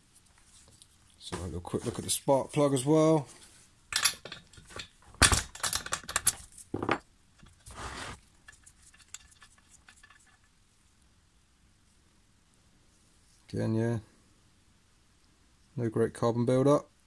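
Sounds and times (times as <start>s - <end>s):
short metal scrape: 7.6s - 8.2s.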